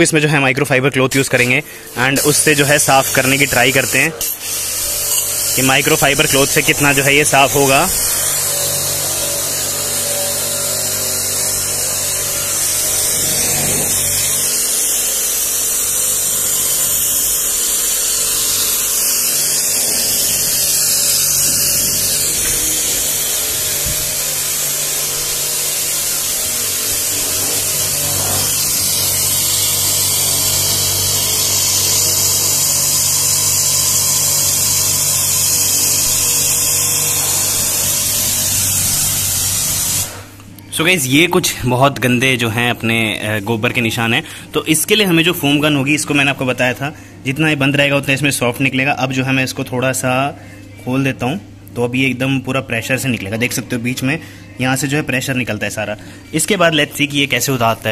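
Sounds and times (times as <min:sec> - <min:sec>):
water jet hissing: 0:01.2 - 0:40.4
pressure washer motor hum: 0:01.3 - 0:40.5.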